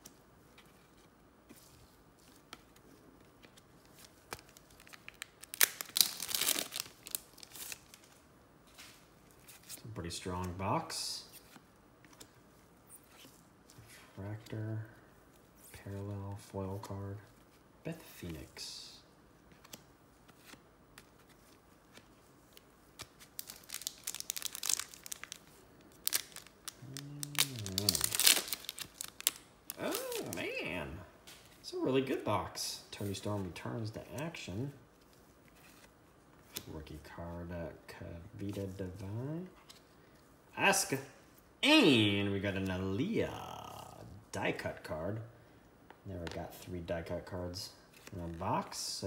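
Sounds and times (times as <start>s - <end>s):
foil wrapper tearing and crinkling: 4.4s - 8.0s, 23.3s - 30.4s.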